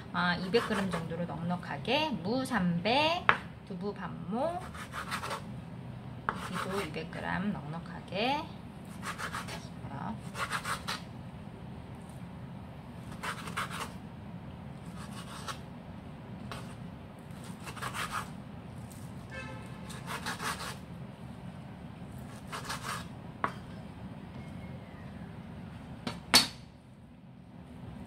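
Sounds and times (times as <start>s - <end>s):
steady low hum: 0.0s - 28.0s
knife chopping on wooden board: 6.3s - 6.7s.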